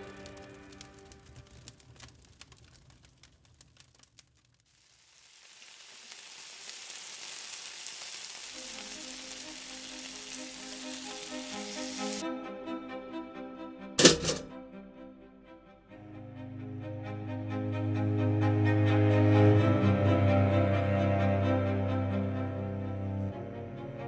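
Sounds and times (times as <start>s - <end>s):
music with sustained notes: 0.0s - 1.2s, 8.6s - 24.0s
bacon and egg sizzling: 4.1s - 12.2s.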